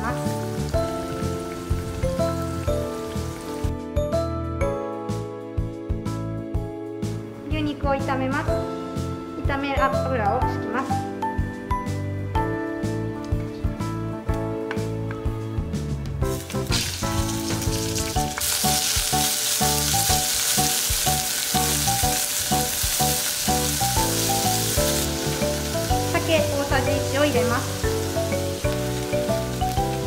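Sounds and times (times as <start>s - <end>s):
beef sizzling in hot oil: 0.0s - 3.8s, 16.3s - 30.0s
background music: 0.0s - 30.0s.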